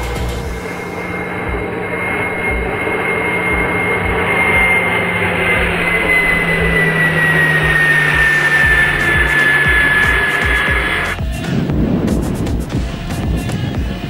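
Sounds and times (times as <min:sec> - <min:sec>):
model jet fan whining: 0:00.0 - 0:11.6.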